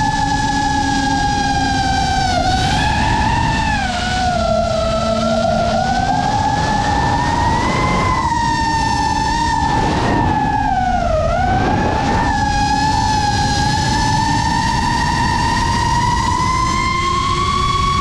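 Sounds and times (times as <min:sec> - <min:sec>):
low rumble: 0:00.0 - 0:17.4
drone motors whining: 0:00.0 - 0:18.0.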